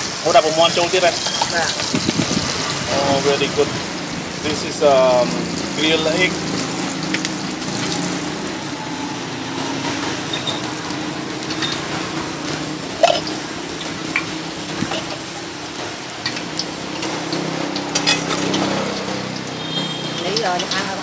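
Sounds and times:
charcoal grill sizzling: 0.0 - 21.0
small crackles and clicks: 6.5 - 8.1, 9.8 - 21.0.

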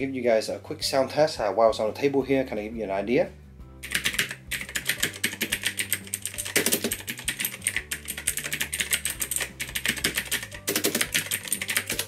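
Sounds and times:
mechanical keyboard typing: 3.8 - 12.0.

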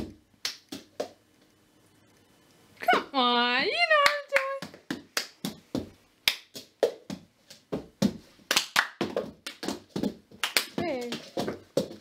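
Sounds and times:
hand claps: 0.4 - 1.2, 4.0 - 5.6, 6.2 - 7.1, 8.5 - 9.8, 10.4 - 11.2.

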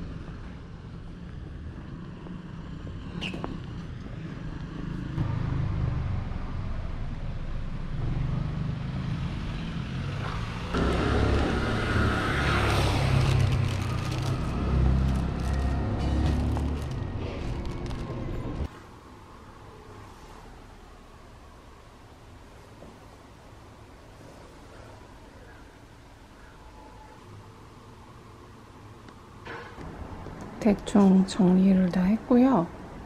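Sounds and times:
hiss of street noise: 0.0 - 16.6
low rumble of traffic: 0.0 - 33.0.

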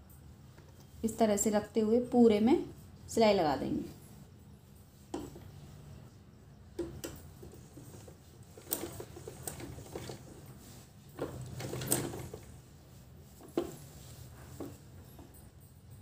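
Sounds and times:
sewing machine clicks and knocks: 6.8 - 12.6
sewing machine humming: 6.8 - 12.6.

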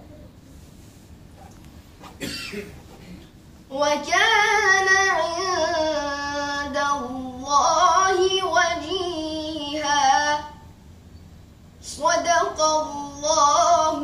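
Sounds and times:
boy chanting melodically: 3.7 - 10.6, 11.8 - 14.0.

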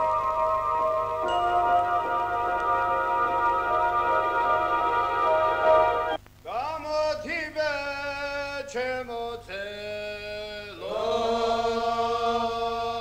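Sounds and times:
men singing a slow chant: 7.6 - 13.0.

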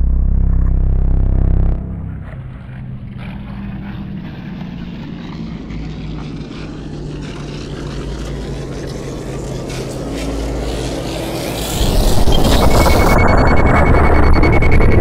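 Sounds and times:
low steady hum: 0.0 - 6.8
crackling noise: 0.0 - 15.0
deep rumble: 0.0 - 15.0.

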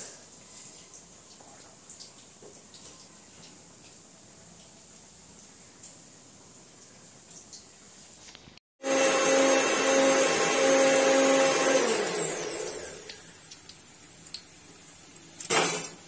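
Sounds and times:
oil sizzling while deep-frying: 0.0 - 16.0
small electric motor whining: 8.8 - 13.2.

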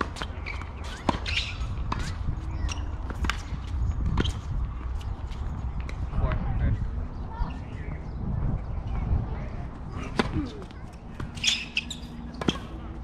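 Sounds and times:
tennis ball bouncing on hard court: 0.0 - 4.9, 11.2 - 12.8
tennis ball struck by racquets: 12.3 - 12.8.

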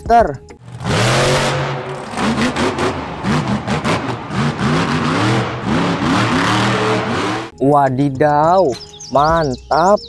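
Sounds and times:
truck engine revving: 0.6 - 7.6.

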